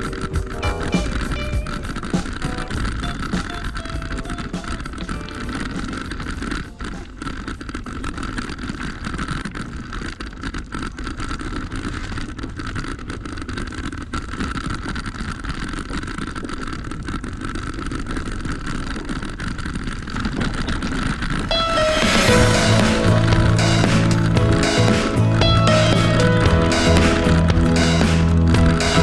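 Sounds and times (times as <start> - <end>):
bike rattling and knocking: 0.0 - 21.6
tyres rumbling over stones: 3.8 - 22.5.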